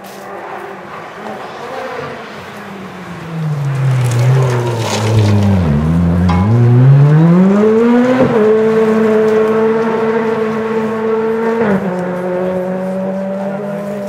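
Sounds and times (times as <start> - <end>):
rally car engine pulling hard: 0.2 - 14.0.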